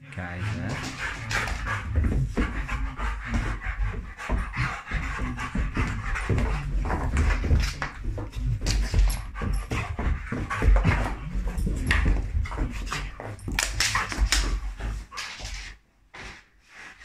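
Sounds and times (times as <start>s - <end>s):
dog noises: 0.1s - 15.8s.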